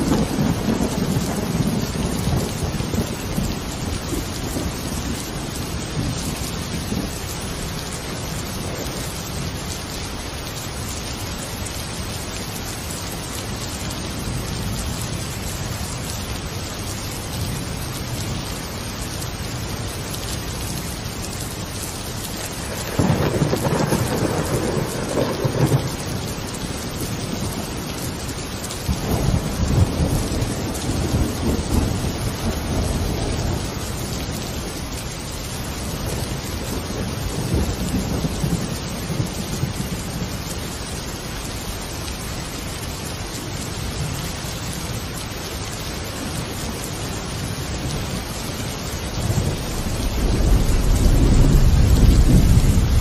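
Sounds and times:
thunder rolling: 0:00.0 - 0:06.2, 0:22.6 - 0:26.3, 0:49.2 - 0:53.0
steady rain: 0:00.0 - 0:53.0.

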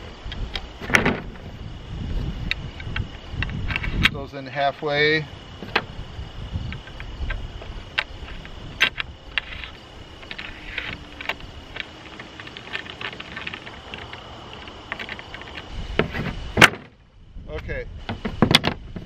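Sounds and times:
wind rumble on microphone: 0:00.0 - 0:19.0
metal track clicks and scrapes: 0:06.8 - 0:16.4.

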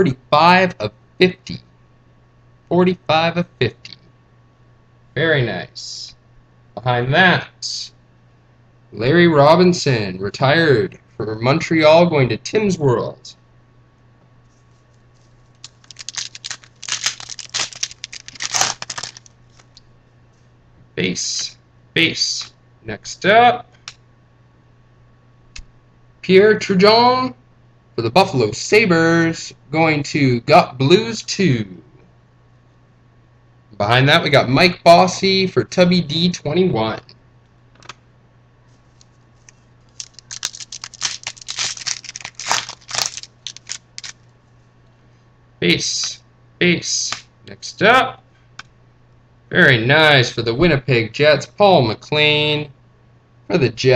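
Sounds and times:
wrapper tearing and crinkling: 0:15.2 - 0:19.8, 0:39.9 - 0:44.2.

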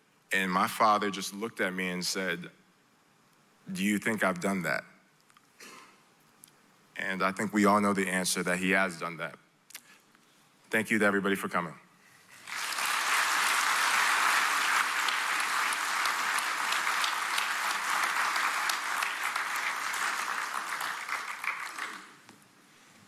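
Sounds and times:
audience applauding: 0:12.3 - 0:22.3.

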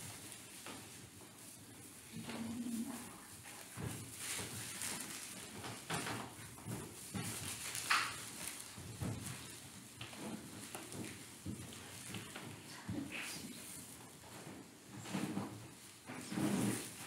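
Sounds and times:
people shuffling and rustling: 0:00.0 - 0:17.0
louder rustle or scrape: 0:16.1 - 0:17.0.

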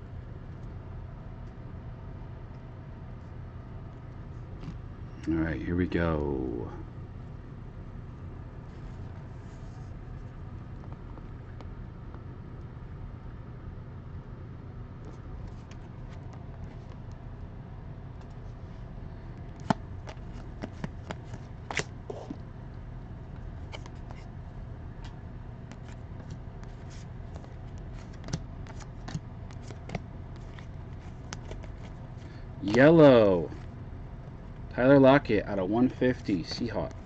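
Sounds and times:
steady low hum: 0:00.0 - 0:37.0
trading cards rustling and clicking: 0:19.5 - 0:22.4, 0:23.4 - 0:24.4, 0:25.0 - 0:33.7.

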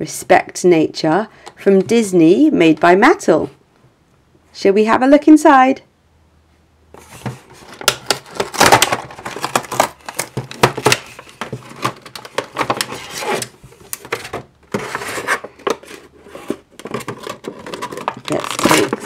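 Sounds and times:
plastic blister pack crackling: 0:07.6 - 0:14.2, 0:16.8 - 0:19.0.

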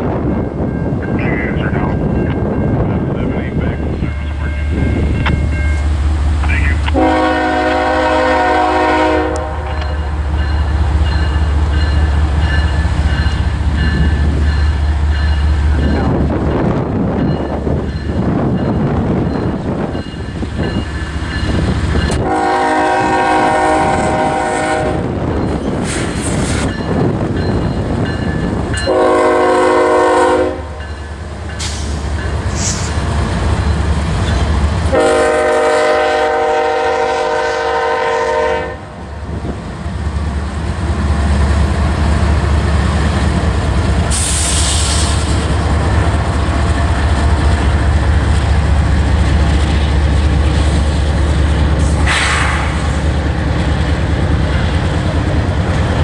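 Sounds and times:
diesel engines and wheels rumbling: 0:00.0 - 0:56.0
locomotive air horn blasts: 0:06.9 - 0:09.8, 0:22.2 - 0:25.1, 0:28.9 - 0:30.8, 0:34.9 - 0:39.0.

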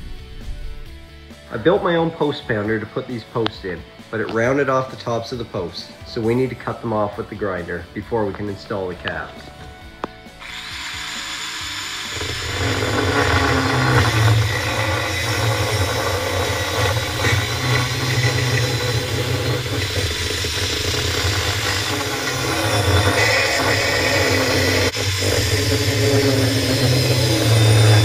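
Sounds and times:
angle grinder cutting metal: 0:10.3 - 0:28.0.

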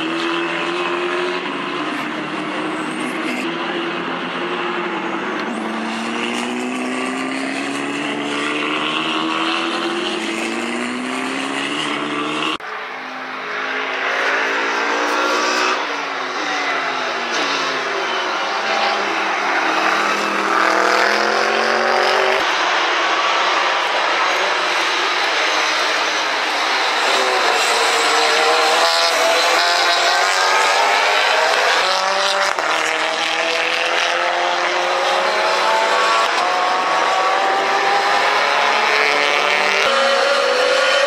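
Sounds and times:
race car engine accelerating: 0:00.0 - 0:12.6, 0:13.5 - 0:41.0
race cars passing: 0:00.0 - 0:41.0.

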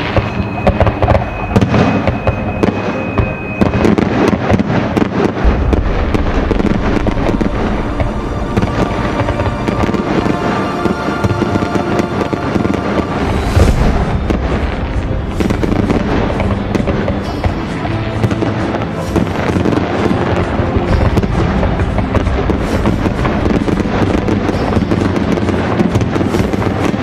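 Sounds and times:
fireworks bangs and crackles: 0:00.0 - 0:27.0
music playing: 0:00.0 - 0:27.0.

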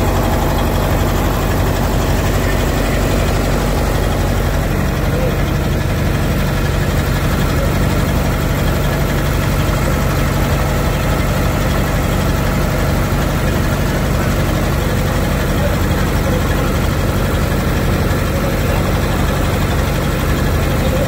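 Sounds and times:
boat diesel engines idling: 0:00.0 - 0:21.0.

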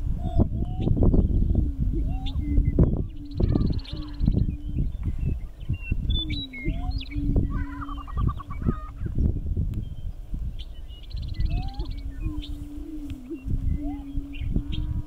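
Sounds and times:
low rumbling noise: 0:00.0 - 0:10.0, 0:11.4 - 0:15.0
birds booming low hoots: 0:00.0 - 0:15.0
rapid chattering bird notes: 0:00.5 - 0:09.1
bird cackles and whoops: 0:06.2 - 0:09.2.

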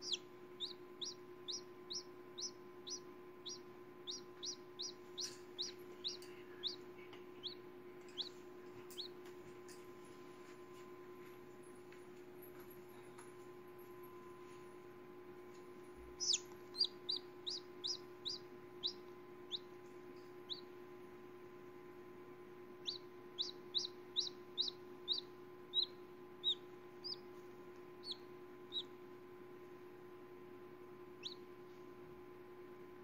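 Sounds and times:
chick peeping: 0:00.0 - 0:09.3, 0:16.0 - 0:19.8, 0:20.4 - 0:20.8, 0:22.8 - 0:29.0, 0:31.2 - 0:31.5
faint steady hum: 0:00.0 - 0:33.0.

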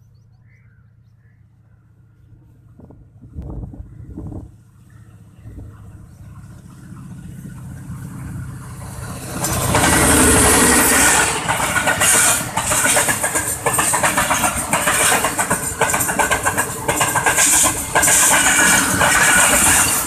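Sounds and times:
diesel locomotive engine: 0:00.0 - 0:20.0
train wheels clattering on rails: 0:04.8 - 0:20.0.

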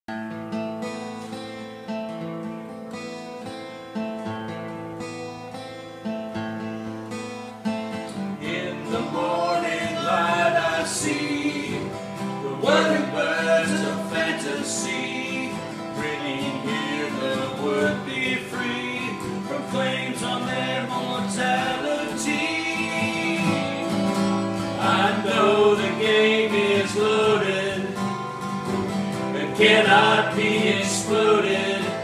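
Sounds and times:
acoustic guitars strumming chords: 0:00.1 - 0:32.0
man singing: 0:08.4 - 0:28.2, 0:29.3 - 0:32.0.

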